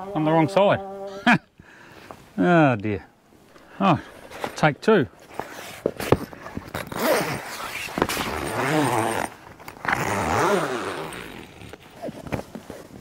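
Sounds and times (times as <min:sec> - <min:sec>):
heavy zip being pulled: 0:05.3 - 0:13.0.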